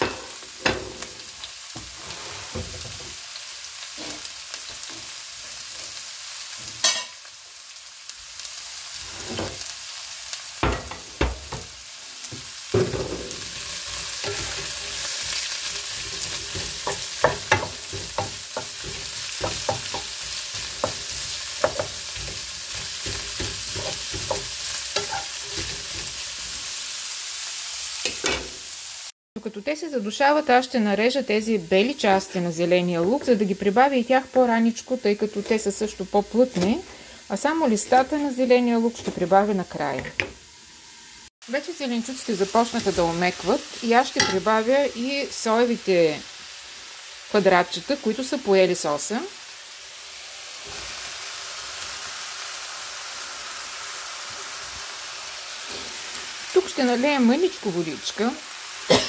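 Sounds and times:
vegetables sizzling in oil: 0.0s - 59.0s
wooden spatula knocking on pan: 10.6s - 11.7s, 16.6s - 20.2s, 20.8s - 22.3s, 23.0s - 25.2s.

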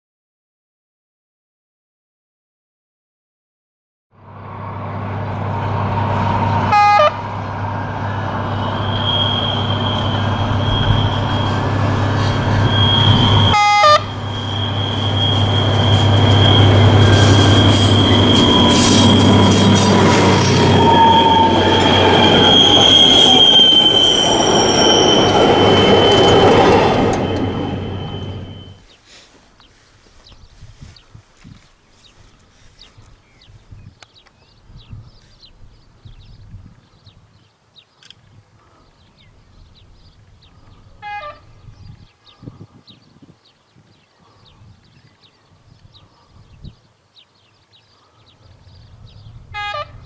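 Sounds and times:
high whine: 4.2s - 28.8s
diesel locomotive engine drone: 4.2s - 31.0s, 48.4s - 50.0s
train horn blasts: 6.2s - 28.8s, 41.0s - 41.7s, 49.5s - 50.0s.

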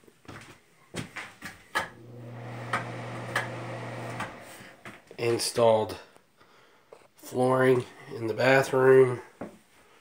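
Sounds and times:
footsteps in a room: 0.0s - 2.0s, 4.1s - 5.3s, 9.2s - 10.0s.

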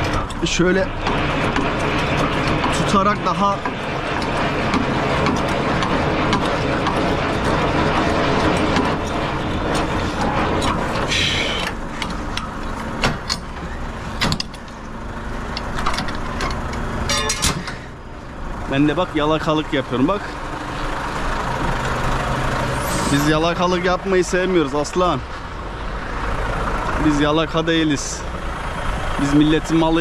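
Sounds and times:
metal clicks and clanks: 0.0s - 17.9s
crank grinding and rattling: 0.0s - 30.0s
truck engine running: 0.0s - 30.0s.

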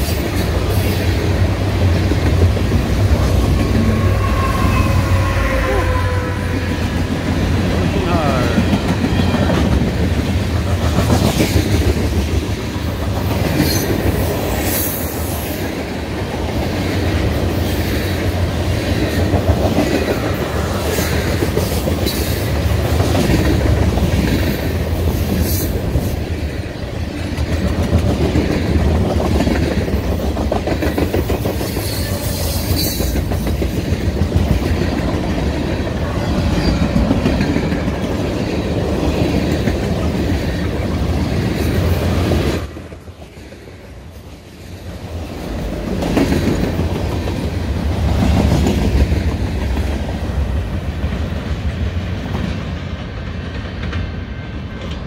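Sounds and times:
freight cars rumbling past: 1.0s - 10.9s.

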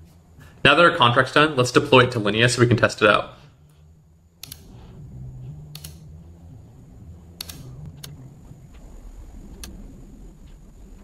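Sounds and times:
low steady hum: 0.0s - 11.0s
computer mouse clicks: 4.4s - 4.7s, 5.7s - 6.0s, 7.4s - 8.2s.

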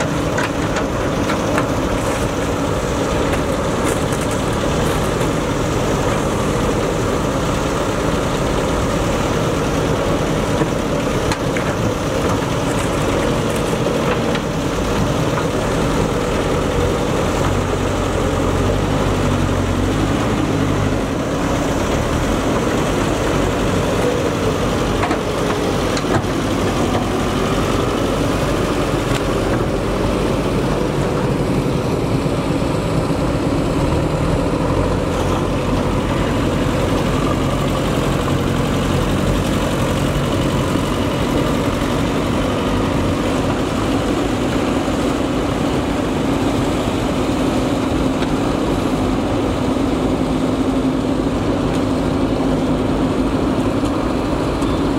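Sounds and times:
diesel engine running: 0.0s - 54.9s.

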